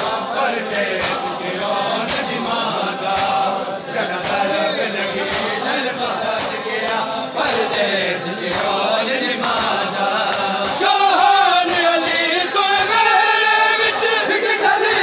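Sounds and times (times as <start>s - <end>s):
men chanting in unison: 0.0s - 15.0s
chest-beating slaps: 2.0s - 2.4s.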